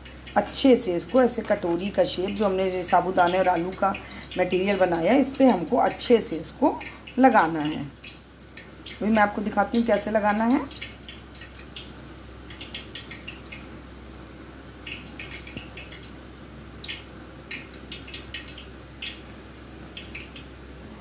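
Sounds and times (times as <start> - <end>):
low steady hum: 0.0 - 21.0
soft wet clicking of mashed mixture: 6.8 - 9.0, 14.8 - 16.2.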